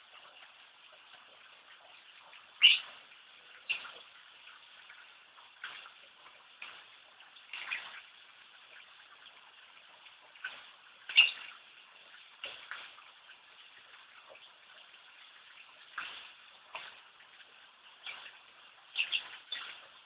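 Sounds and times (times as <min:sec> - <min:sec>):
bird sharp calls: 0:02.6 - 0:03.0, 0:19.0 - 0:19.8.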